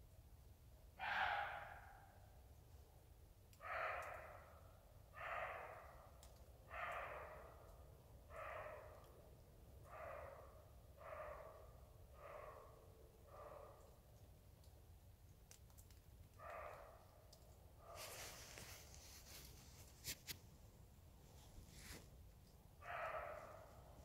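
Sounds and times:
deer barking: 1.0s - 2.1s, 22.8s - 24.0s.

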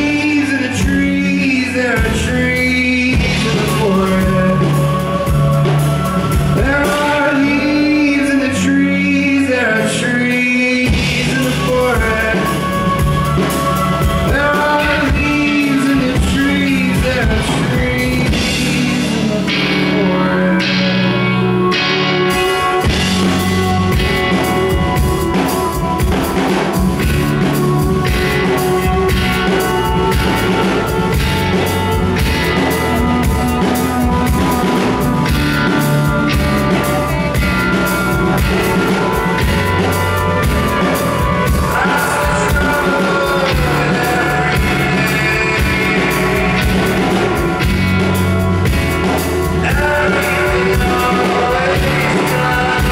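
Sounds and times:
archtop guitar: 0.0s - 52.9s
bass guitar: 0.0s - 52.9s
drum kit steady beat: 0.0s - 52.9s.

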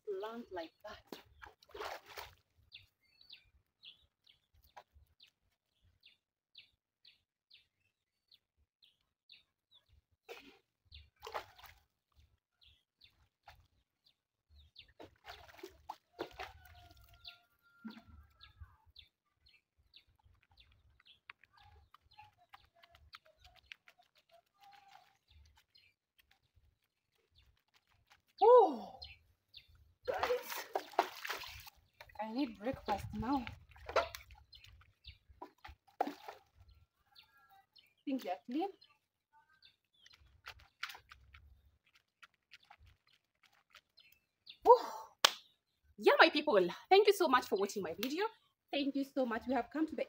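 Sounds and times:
small birds chirping: 0.0s - 50.0s
feet being washed with water: 1.0s - 3.0s, 10.3s - 17.9s, 19.8s - 36.7s, 39.7s - 44.7s.

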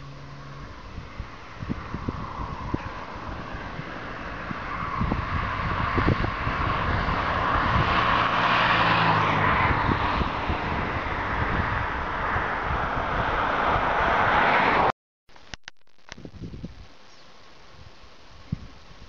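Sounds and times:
car passing close by: 0.0s - 14.9s.

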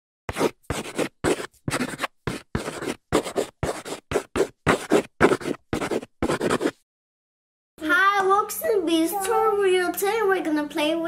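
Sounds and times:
chalk scratching on a blackboard: 0.3s - 6.8s.

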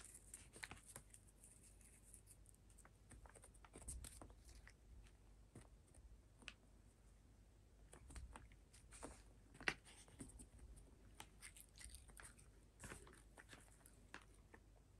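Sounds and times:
cat chewing crunches: 11.1s - 14.7s.

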